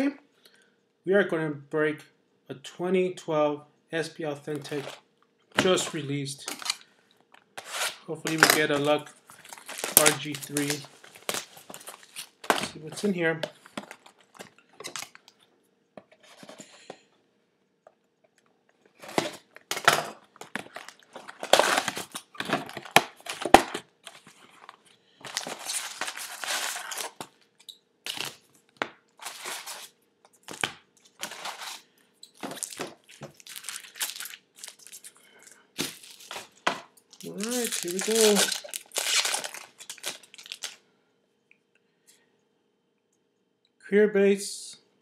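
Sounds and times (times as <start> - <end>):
packaging tearing and crinkling: 5.6 - 6.9, 7.6 - 15.4, 19.0 - 27.4, 28.1 - 28.4, 29.2 - 35.2, 35.8 - 40.8.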